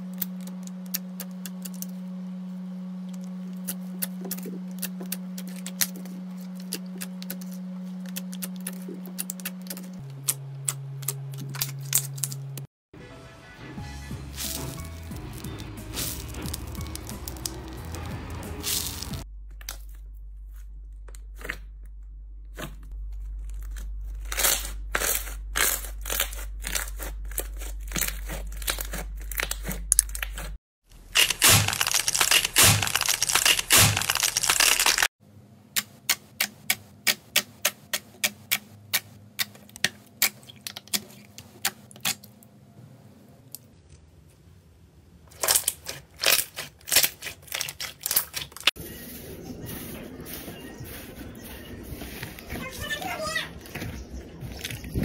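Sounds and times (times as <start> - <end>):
slime shell crackling: 14.4 - 20.6, 22.6 - 35.1, 45.3 - 48.7.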